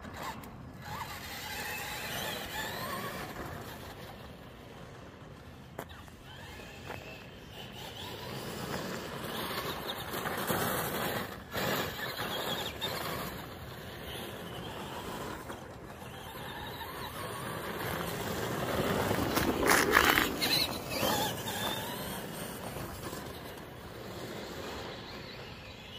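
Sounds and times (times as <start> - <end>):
tyres crunching on gravel: 17.4 - 23.5.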